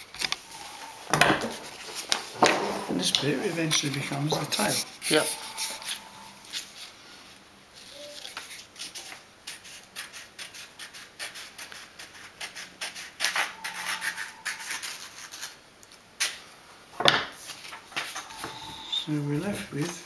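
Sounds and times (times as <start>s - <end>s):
scissors cutting paper: 8.0s - 15.6s.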